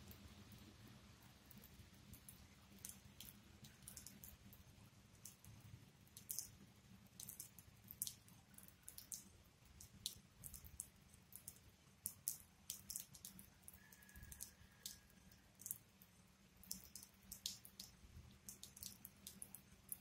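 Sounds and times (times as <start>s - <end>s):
faint high-pitched ticks: 7.2s - 20.0s.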